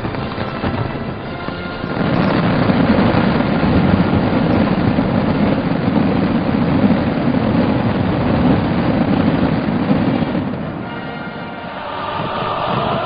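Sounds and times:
fireworks barrage rumble: 0.0s - 13.0s.

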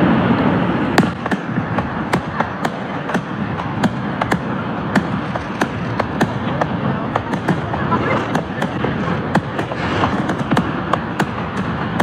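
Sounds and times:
fireworks bursting with sharp bangs: 0.0s - 12.0s
steady rushing background: 0.0s - 12.0s.

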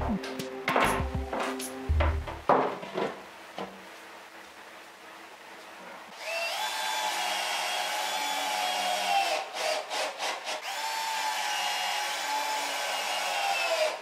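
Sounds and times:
power drill running: 6.1s - 14.0s.

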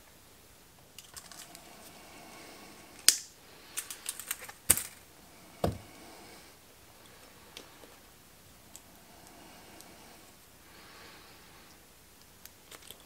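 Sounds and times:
tools being handled: 3.7s - 5.0s
dull knock: 5.6s - 5.9s.

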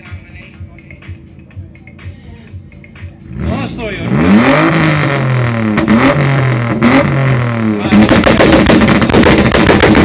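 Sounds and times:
car engine revving: 2.7s - 10.0s
sharp exhaust bangs: 3.3s - 10.0s.

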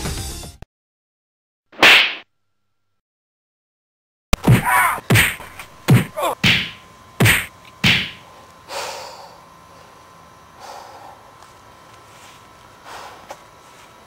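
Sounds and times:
hard whacks: 1.8s - 2.2s, 4.4s - 8.2s.

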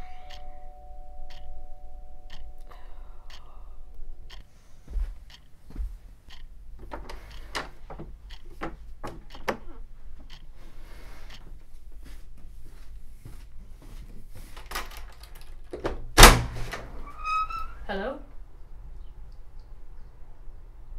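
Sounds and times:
two-tone doorbell chime: 0.0s - 3.1s
clock ticking: 0.0s - 11.7s.

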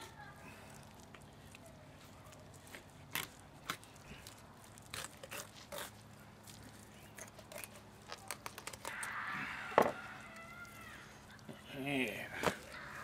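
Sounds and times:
knife crunching through fish bones: 2.7s - 9.1s.

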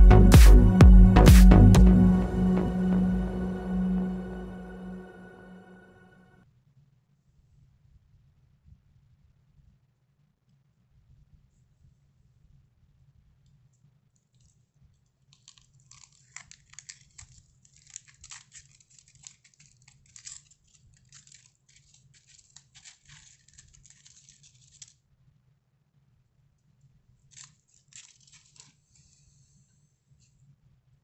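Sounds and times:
aluminium foil crinkling: 15.2s - 25.1s, 27.2s - 29.4s.

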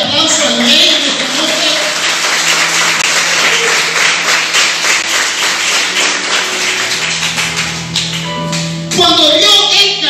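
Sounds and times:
crowd clapping: 0.8s - 8.8s.

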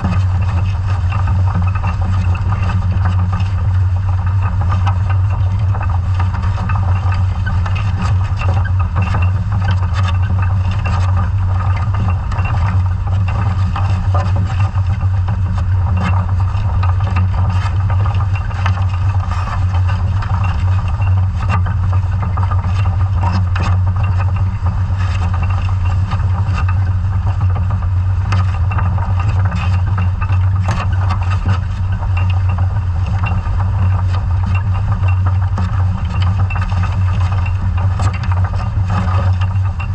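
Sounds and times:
dredge gear clicks and rattles: 0.0s - 39.9s
underwater engine drone: 0.0s - 39.9s.

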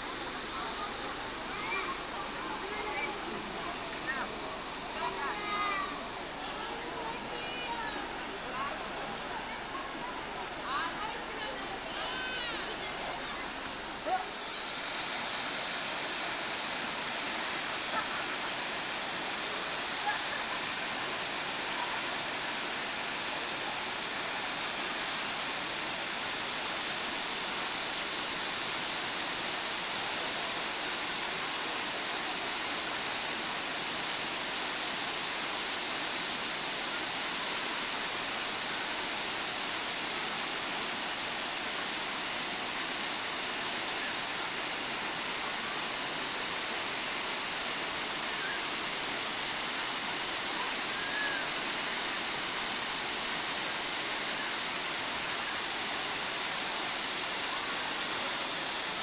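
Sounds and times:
stream rushing over rapids: 0.0s - 59.0s.

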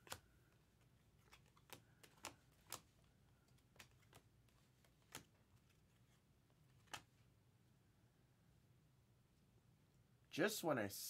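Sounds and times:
trading cards clicking: 0.0s - 5.8s, 6.7s - 7.1s.

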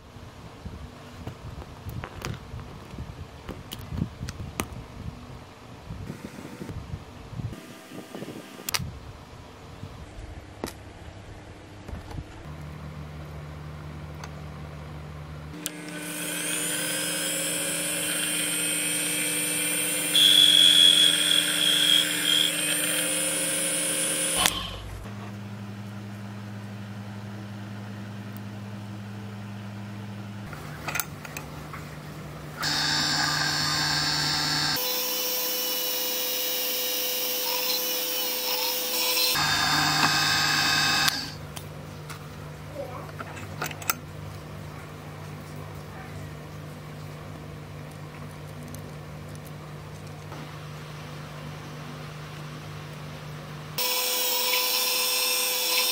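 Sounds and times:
drill bit drilling into plastic: 15.6s - 24.8s, 32.6s - 41.4s, 53.8s - 55.9s
drill press motor whine: 15.6s - 25.1s, 32.5s - 41.4s, 53.8s - 55.9s.

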